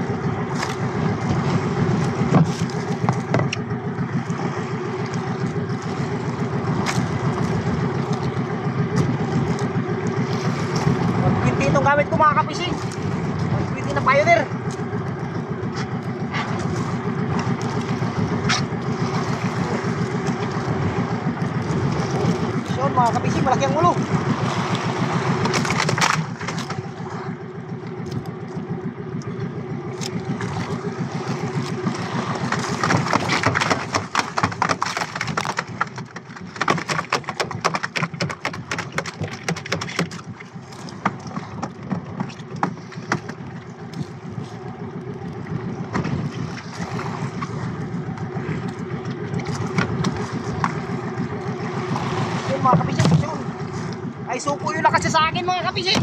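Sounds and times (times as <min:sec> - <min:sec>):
small boat engine running: 0:00.0 - 0:56.0
fish thrashing and knocking: 0:00.4 - 0:11.7, 0:12.8 - 0:28.7, 0:29.3 - 0:56.0.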